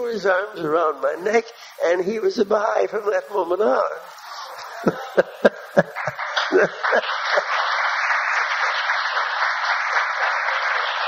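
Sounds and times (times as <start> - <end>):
audience applauding: 4.4 - 11.0
bursts of laughter: 4.5 - 8.9.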